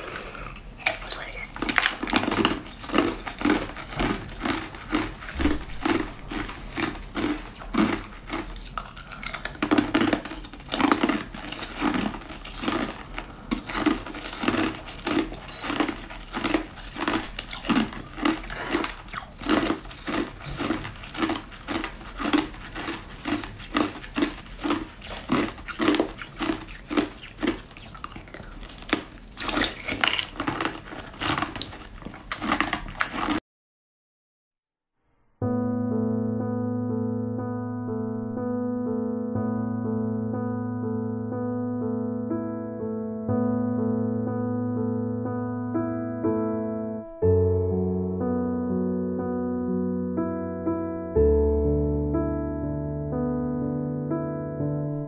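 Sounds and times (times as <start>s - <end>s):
crunching and chewing ice: 0.0s - 33.4s.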